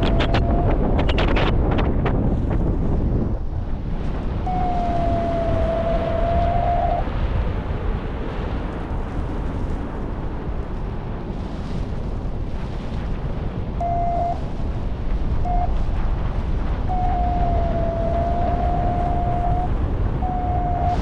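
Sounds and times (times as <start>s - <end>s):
thin electronic tone: 0.0s - 0.7s, 4.5s - 7.0s, 13.8s - 14.4s, 15.5s - 15.7s, 16.9s - 21.0s
heavy wind over microphone: 0.0s - 21.0s.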